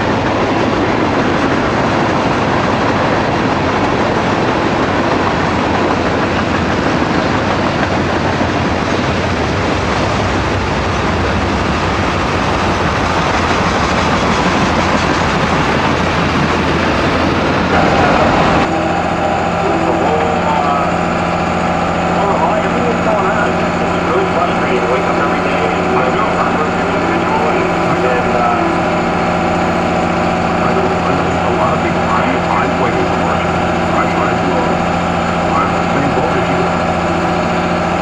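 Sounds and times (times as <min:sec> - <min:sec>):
freight train rolling past: 0:00.0 - 0:38.0
tractor passing close by: 0:09.0 - 0:38.0.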